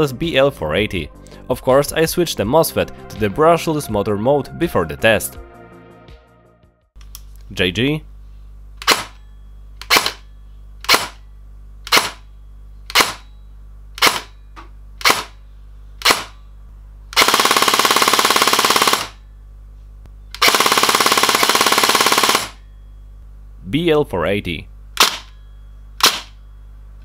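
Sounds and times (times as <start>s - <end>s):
airsoft rifle full-auto burst: 9.8s - 10.2s, 10.8s - 11.2s, 11.9s - 12.2s, 12.9s - 13.2s, 15.0s - 15.4s, 16.0s - 16.3s, 17.2s - 19.2s, 20.4s - 22.6s, 26.0s - 26.4s
airsoft rifle single shots: 25.0s - 25.3s, 26.0s - 26.4s.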